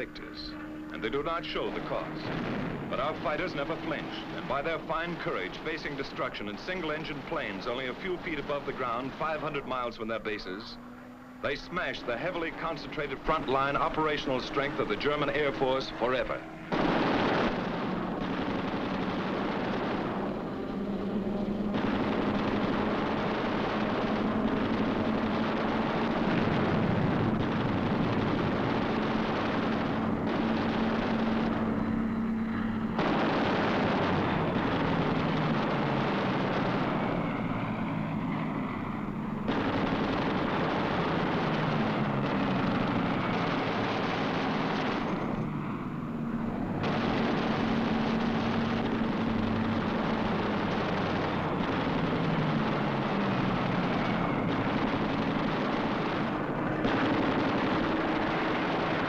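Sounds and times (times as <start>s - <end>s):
fighter plane engine drone: 0.0s - 59.0s
machine-gun fire: 11.6s - 38.2s, 39.4s - 59.0s.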